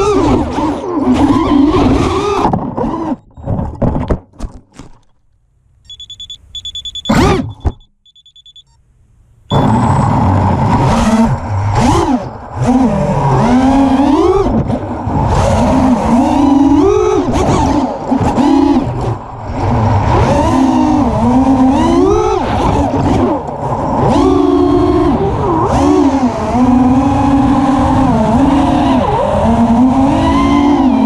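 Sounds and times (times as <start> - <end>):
quadcopter motors whining: 0.0 - 3.2, 9.5 - 31.0
short high beeps: 5.8 - 8.8, 9.5 - 10.1.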